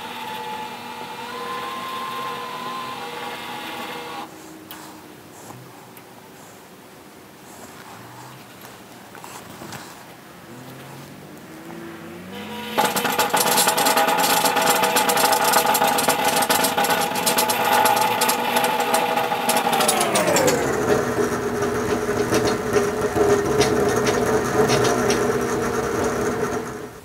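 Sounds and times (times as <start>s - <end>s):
bead roller whirring: 0.0s - 4.3s, 10.5s - 27.0s.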